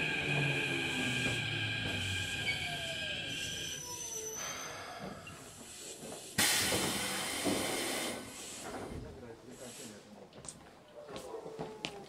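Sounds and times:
train motors whining: 0.0s - 5.7s
wheel and rail noise: 0.0s - 8.9s.

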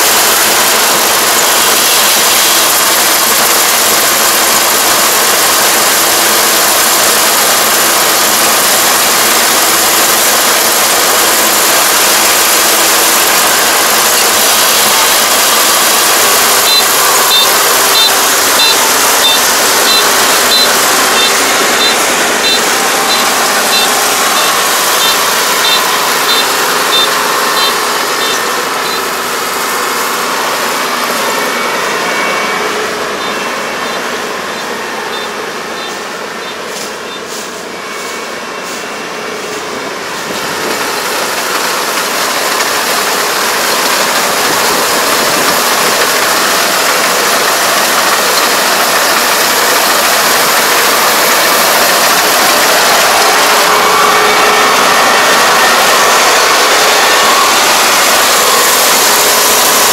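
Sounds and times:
combine harvester running: 0.0s - 59.9s.

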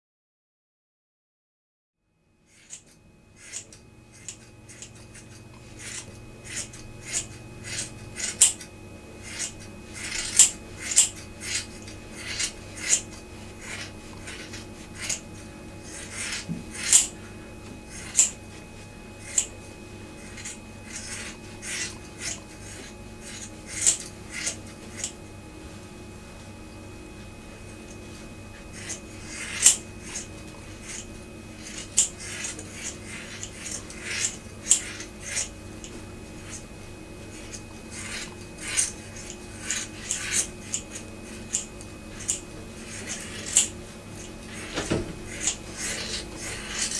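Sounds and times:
low steady hum: 2.0s - 46.9s
scissors snipping hair: 2.5s - 17.2s, 17.9s - 18.4s, 19.2s - 19.5s, 20.2s - 25.2s, 28.7s - 36.6s, 37.3s - 46.9s.

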